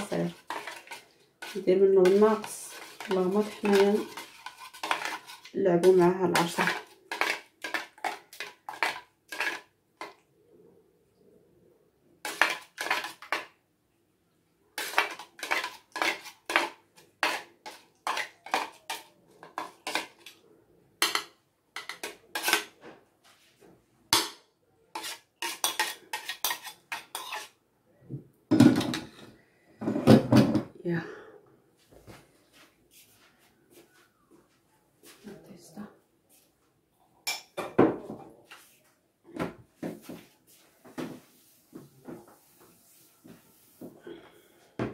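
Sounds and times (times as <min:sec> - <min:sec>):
metal spoon scraping strainer: 0:00.0 - 0:09.7, 0:12.2 - 0:13.4, 0:14.8 - 0:20.4, 0:21.8 - 0:22.7, 0:24.9 - 0:27.6.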